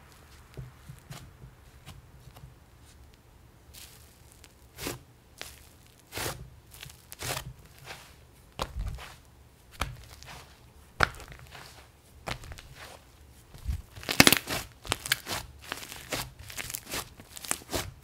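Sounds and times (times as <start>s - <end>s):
slime popping and crackling: 3.7s - 7.8s, 11.0s - 12.9s, 13.6s - 17.9s
slime squishing: 3.7s - 18.0s.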